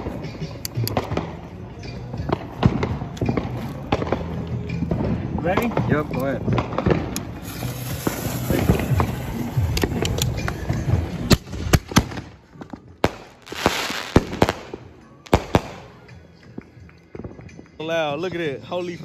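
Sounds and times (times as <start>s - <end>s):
firework bangs: 2.2s - 16.2s
hissing sparks: 7.1s - 10.6s, 13.4s - 14.7s.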